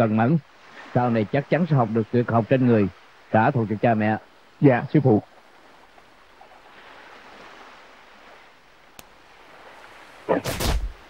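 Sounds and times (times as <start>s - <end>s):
faint background hiss: 0.0s - 11.0s
sharp whoosh of a strike: 10.3s - 11.0s.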